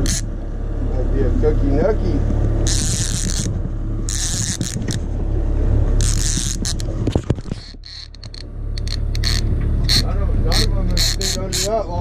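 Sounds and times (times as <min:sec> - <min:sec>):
fishing reel cranking: 0:00.0 - 0:00.3, 0:02.6 - 0:03.5, 0:04.1 - 0:05.1, 0:06.0 - 0:12.0
low rumble of boat and wind: 0:00.0 - 0:12.0.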